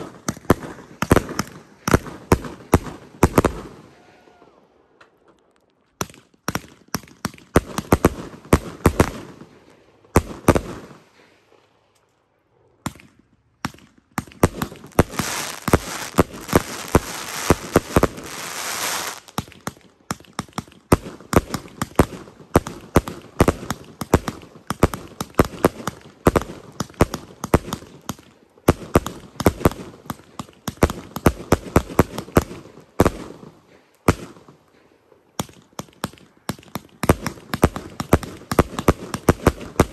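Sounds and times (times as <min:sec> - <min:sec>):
fireworks firing sharp reports: 0:00.0 - 0:04.1, 0:06.5 - 0:11.0, 0:14.2 - 0:34.5, 0:35.4 - 0:39.9
firework crackle: 0:14.3 - 0:33.5.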